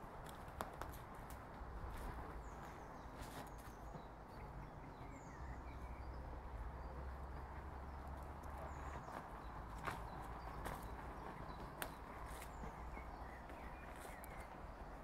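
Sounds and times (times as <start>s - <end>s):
footsteps on dirt path: 8.9s - 14.5s.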